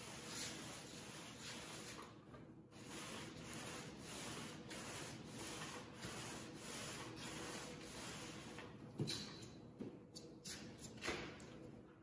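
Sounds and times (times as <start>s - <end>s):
paint roller swishing on floor: 0.0s - 2.2s, 2.8s - 8.8s.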